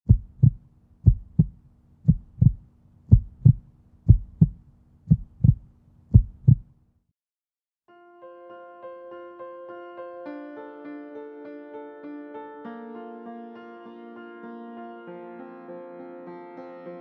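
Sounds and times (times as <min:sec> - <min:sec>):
heartbeat thumps: 0:00.1 - 0:06.7
soft piano music: 0:07.9 - 0:17.0.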